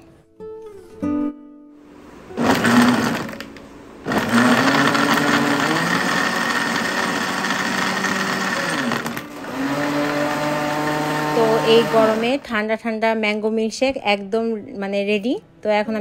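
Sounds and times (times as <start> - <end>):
blender motor running: 2.4 - 3.5, 4.1 - 12.4.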